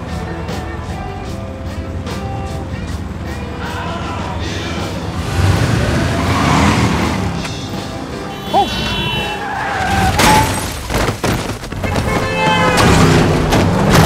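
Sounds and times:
music: 0.0s - 10.9s
car traffic noise: 0.0s - 14.0s.

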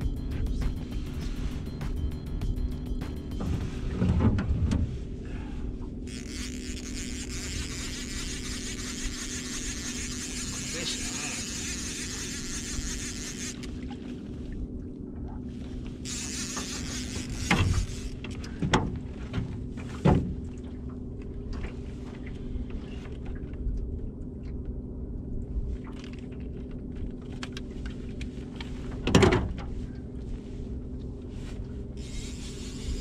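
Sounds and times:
electric trolling motor hum: 6.0s - 14.4s, 15.8s - 18.6s, 32.0s - 33.0s.

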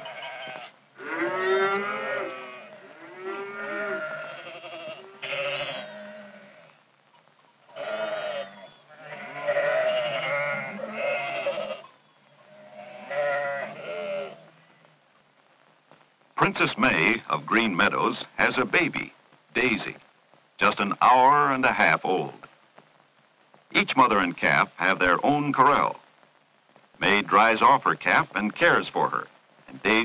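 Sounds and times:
calves bawling: 0.0s - 6.8s, 7.7s - 14.8s.

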